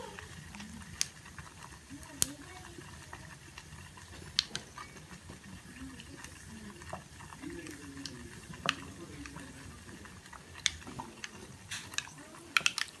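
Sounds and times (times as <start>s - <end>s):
pot cooking hiss: 0.0s - 13.0s
sharp clicks: 10.3s - 13.0s.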